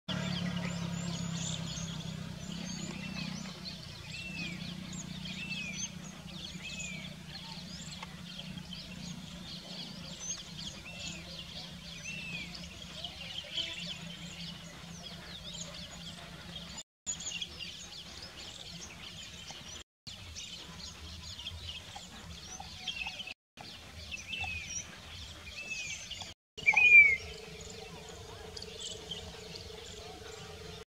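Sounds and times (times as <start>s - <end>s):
small birds chirping: 0.1s - 30.9s
loud slurred bird call: 26.6s - 30.8s.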